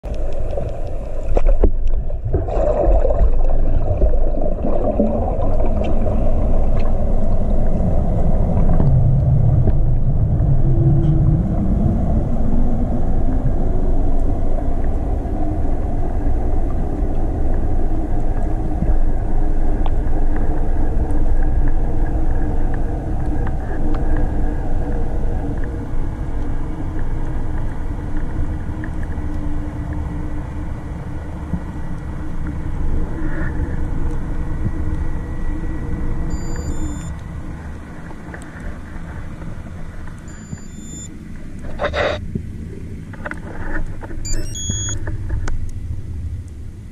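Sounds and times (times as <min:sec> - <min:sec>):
underwater low rumble: 0:00.0 - 0:46.9
tone falling and rising in pitch: 0:44.3 - 0:45.0.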